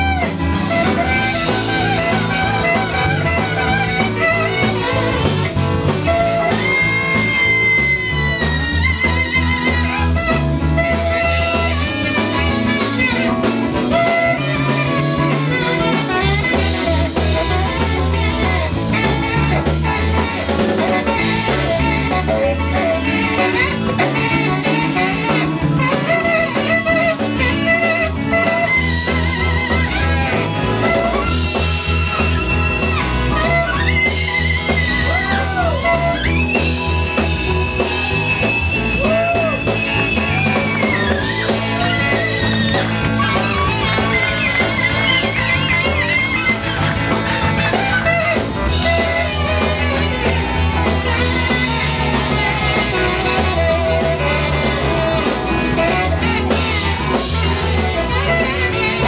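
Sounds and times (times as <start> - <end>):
live band playing: 0.0 - 59.0
saxophone blues solo: 0.0 - 59.0.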